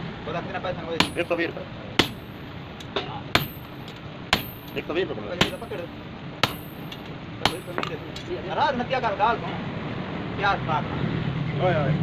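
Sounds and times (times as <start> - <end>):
sledgehammer striking metal tool: 1.0 - 8.3.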